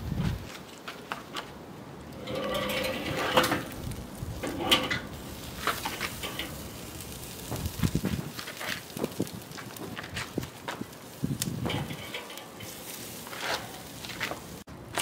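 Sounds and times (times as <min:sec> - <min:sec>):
metal rack scraping on grate: 0:02.1 - 0:09.2, 0:11.5 - 0:15.0.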